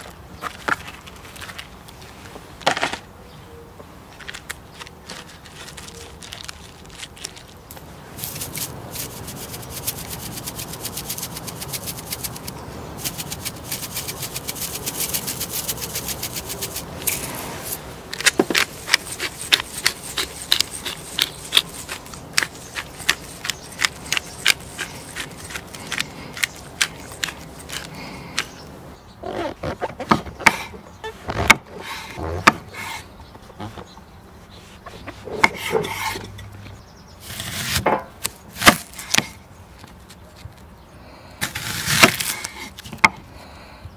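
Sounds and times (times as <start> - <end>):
knife on wooden cutting board: 34.9 - 36.4.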